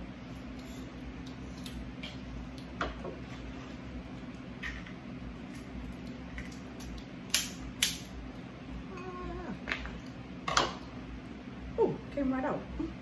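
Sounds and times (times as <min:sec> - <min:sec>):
crab shell cracking by hand: 0:01.2 - 0:02.7, 0:05.4 - 0:08.1.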